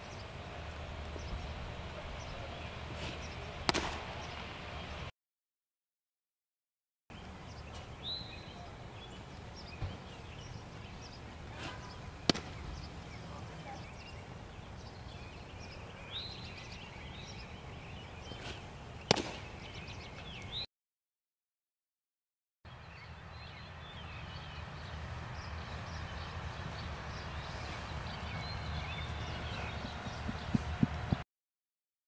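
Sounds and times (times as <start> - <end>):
birds chirping: 0.0 - 5.1, 7.1 - 20.7, 22.7 - 31.2
ball smacking into mitt: 3.0 - 4.0, 11.6 - 12.6, 18.4 - 19.5.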